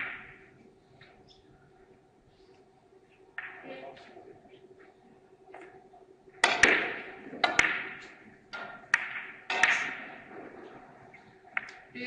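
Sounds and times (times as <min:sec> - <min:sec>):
billiard balls clicking: 0:05.5 - 0:10.7, 0:11.5 - 0:11.9
cue striking ball: 0:06.4 - 0:10.3.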